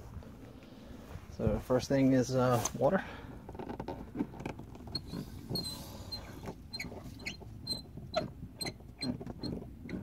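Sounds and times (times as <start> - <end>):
spigot handle squeaking: 4.8 - 10.0.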